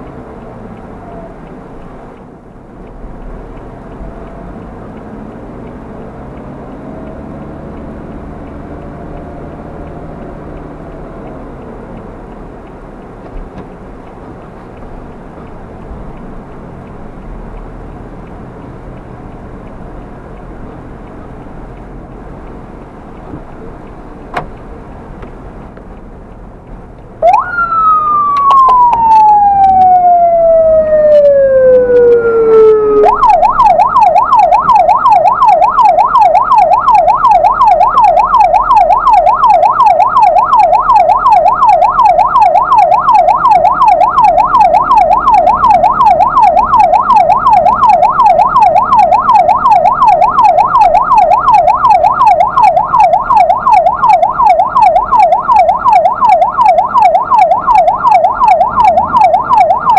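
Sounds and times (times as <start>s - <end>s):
vehicle running noise: 0.0s - 59.9s
ambulance siren: 27.2s - 59.9s.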